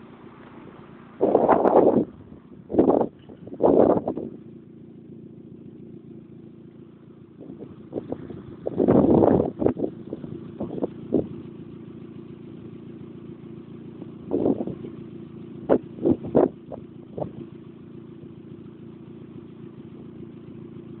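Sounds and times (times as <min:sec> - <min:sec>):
sharp exhaust bursts: 0:00.0 - 0:04.7, 0:06.3 - 0:17.8
car engine idling: 0:00.0 - 0:21.0.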